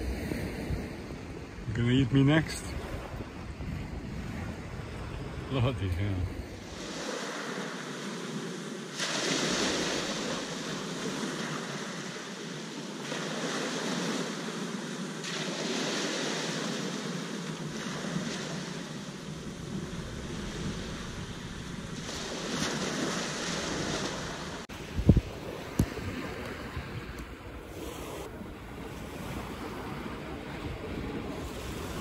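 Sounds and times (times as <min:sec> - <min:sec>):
waves washing up shingle beach: 0:00.0 - 0:32.0
wind on microphone: 0:02.6 - 0:05.5, 0:19.4 - 0:32.0.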